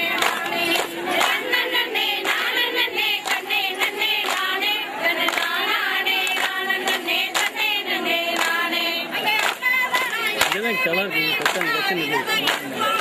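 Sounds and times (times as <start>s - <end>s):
hands clapping in time: 0.0s - 13.0s
women and girls singing: 0.0s - 13.0s.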